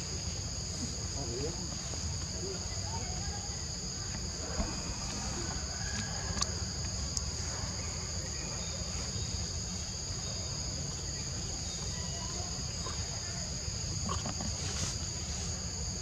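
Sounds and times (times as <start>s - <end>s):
forest insects droning: 0.0s - 16.0s
low steady rumble: 3.4s - 11.6s.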